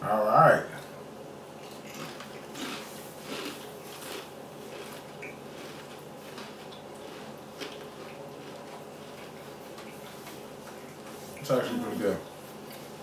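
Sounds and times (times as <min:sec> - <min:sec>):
crunching and chewing chips: 0:01.6 - 0:11.0.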